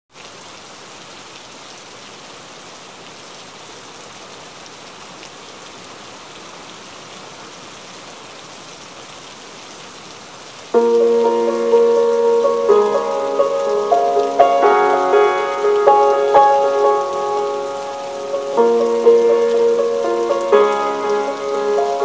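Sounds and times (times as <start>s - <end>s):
steady hiss: 10.7s - 22.0s
piano playing: 10.8s - 22.0s.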